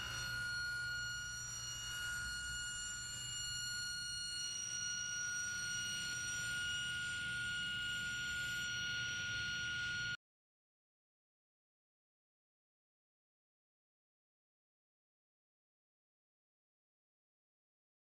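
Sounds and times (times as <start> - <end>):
table saw whining: 0.0 - 10.2.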